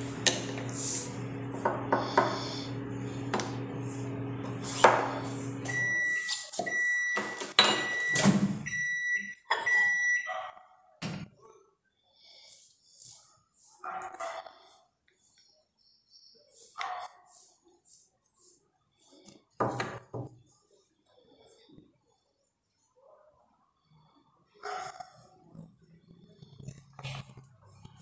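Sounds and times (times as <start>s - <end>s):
microwave oven humming: 0.0s - 9.1s
microwave high beeps: 5.6s - 10.3s.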